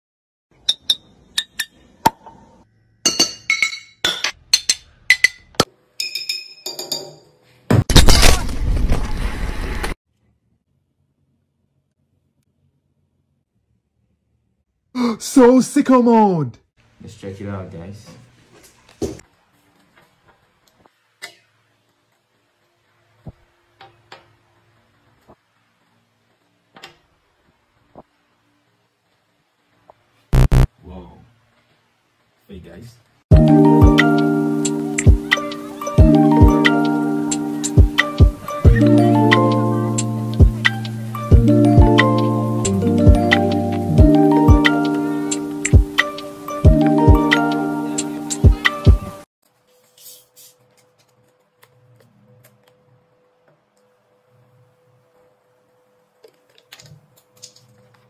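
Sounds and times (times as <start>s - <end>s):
glass bottles clinking: 3.1s - 7.3s
loud burst of noise: 30.4s - 30.7s.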